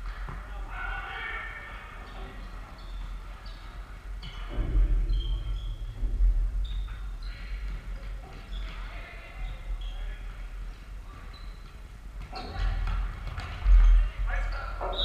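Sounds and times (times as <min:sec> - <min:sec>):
low rumble: 0:04.6 - 0:06.8
shoes squeaking on wooden floor: 0:06.6 - 0:10.2.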